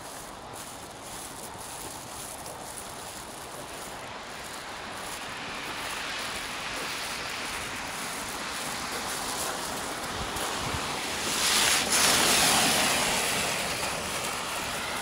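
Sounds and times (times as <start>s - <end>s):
tram rolling on rails: 3.2s - 15.0s.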